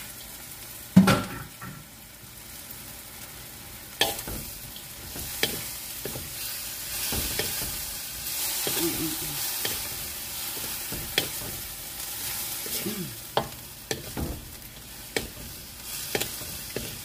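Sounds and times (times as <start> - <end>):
food sizzling in a wok: 0.0 - 17.0
spatula knocking against wok: 4.0 - 6.4, 7.0 - 7.9, 9.6 - 11.8, 13.3 - 17.0.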